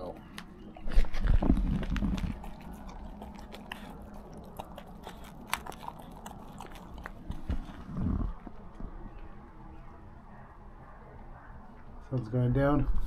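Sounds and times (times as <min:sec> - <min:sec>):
dog crunching dry kibble: 0:00.0 - 0:08.1.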